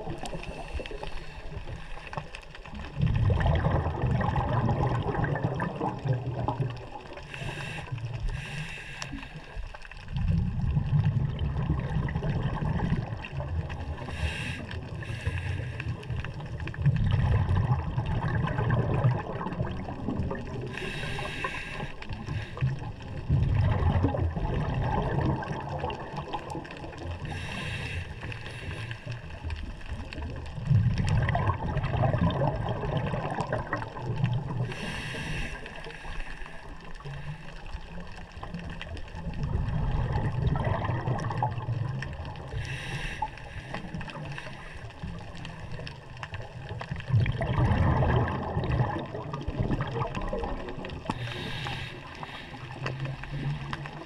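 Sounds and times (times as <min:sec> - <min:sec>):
exhaled bubbles rushing: 0:00.0 - 0:08.6, 0:09.3 - 0:54.0
regulator inhalation hiss: 0:07.3 - 0:09.5, 0:14.1 - 0:15.8, 0:20.7 - 0:22.6, 0:27.3 - 0:29.1, 0:34.7 - 0:36.5, 0:42.6 - 0:43.8, 0:51.2 - 0:52.8.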